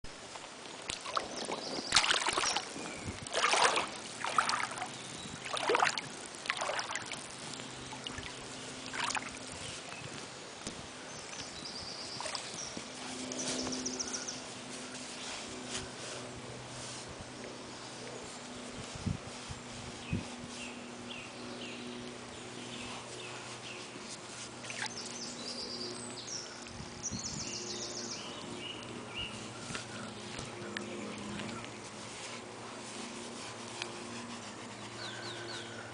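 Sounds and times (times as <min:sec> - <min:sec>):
songbirds chirping: 0:00.2 - 0:35.9
boots splashing through water: 0:00.8 - 0:09.5, 0:12.1 - 0:12.7
shallow stream rushing: 0:00.8 - 0:09.6.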